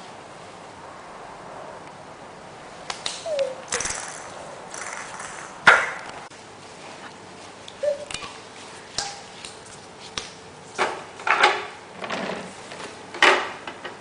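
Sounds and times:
hands slapping tiled floor: 2.9s - 6.2s, 8.1s - 10.4s.

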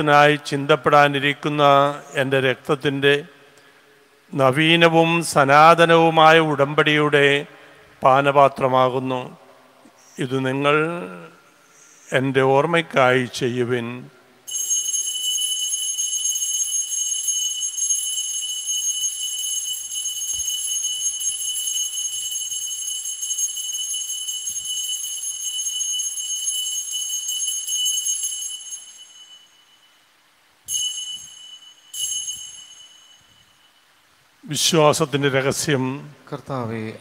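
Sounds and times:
altar bells ringing: 14.5s - 34.3s.

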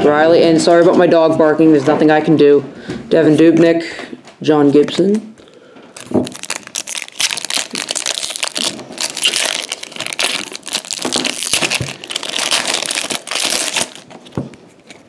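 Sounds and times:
foil wrapper crinkling: 6.0s - 15.0s
wrapper tearing: 6.0s - 15.0s.

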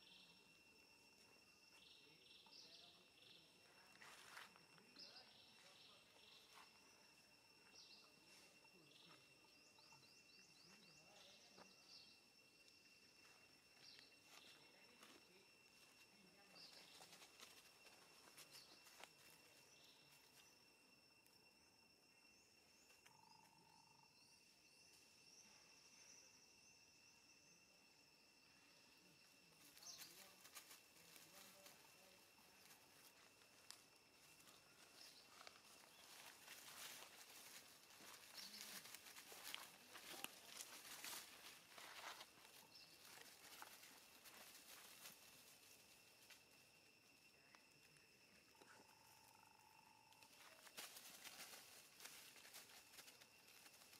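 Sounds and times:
insects buzzing: 0.0s - 53.9s
rustling of dry leaves: 29.6s - 46.8s, 50.2s - 53.9s.

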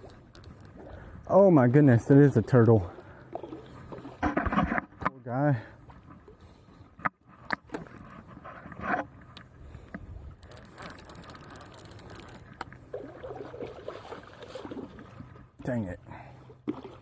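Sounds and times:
fishing reel whirring: 10.4s - 12.5s.

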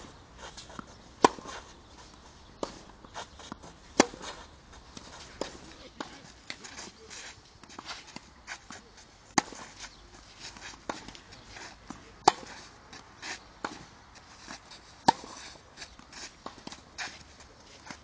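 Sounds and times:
tennis racket hitting ball: 0.5s - 6.9s, 9.4s - 9.7s, 11.9s - 12.7s, 14.8s - 17.3s.

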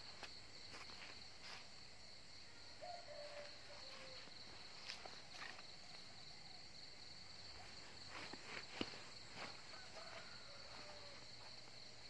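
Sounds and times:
dry grass rustling underfoot: 0.0s - 2.0s, 3.1s - 6.0s, 7.5s - 11.7s
crickets trilling: 0.0s - 12.0s.

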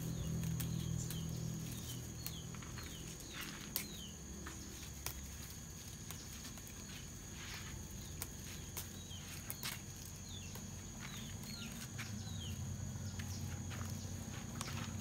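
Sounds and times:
bird chirping: 0.0s - 15.0s
insect trilling: 0.0s - 15.0s
leaves snapping when plucked: 0.2s - 4.0s.

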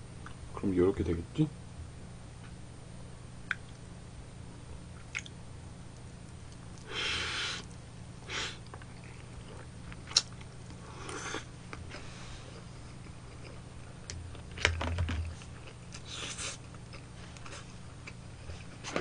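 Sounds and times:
person chewing: 8.6s - 14.7s, 15.3s - 19.0s.

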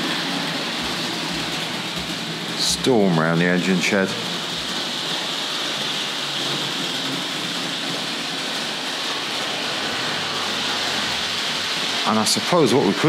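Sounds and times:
model train wheels on rails: 0.0s - 13.0s.

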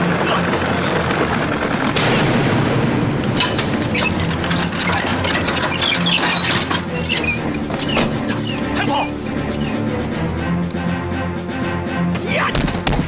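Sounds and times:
continuous booming din: 0.0s - 8.4s.

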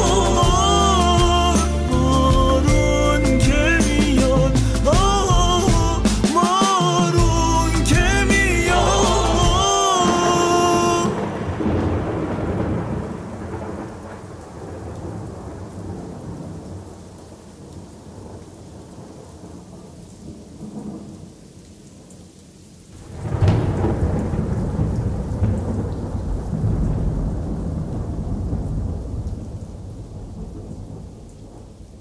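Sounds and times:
steady rain: 0.0s - 32.0s
loud thunderclap: 8.0s - 16.8s, 23.0s - 31.8s
rolling thunder: 8.8s - 17.0s, 23.0s - 32.0s.

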